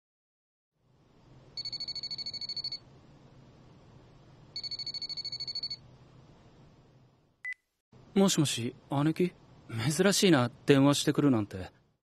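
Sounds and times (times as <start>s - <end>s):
smartphone trilling ring: 1.6s - 2.8s, 4.6s - 5.8s.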